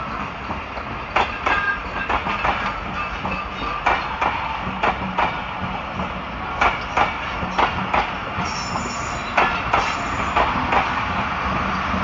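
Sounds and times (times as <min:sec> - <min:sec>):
train wheels clicking over rail joints: 0:00.0 - 0:12.0.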